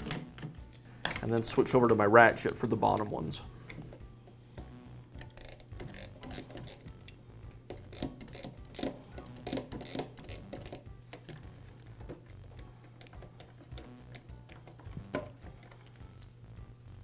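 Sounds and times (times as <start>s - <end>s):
hand tools clicking on screws: 5.2s - 16.3s.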